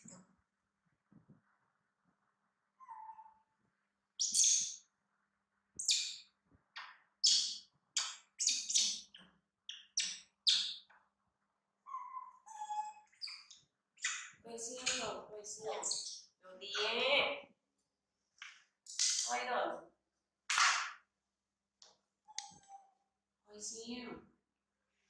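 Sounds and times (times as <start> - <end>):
monkeys squeaking and chirping: 2.8 - 3.3, 4.2 - 4.8, 5.8 - 6.2, 7.2 - 10.9, 11.9 - 17.0.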